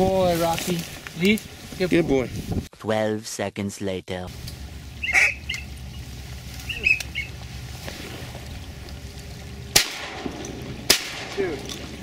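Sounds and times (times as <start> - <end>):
steady low rumble: 4.3 - 12.0
shotgun blast: 9.7 - 11.5.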